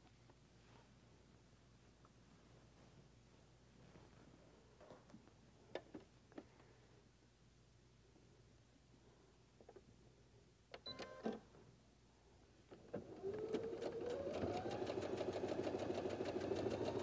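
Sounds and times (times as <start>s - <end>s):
sewing machine stitching: 13.0s - 17.0s.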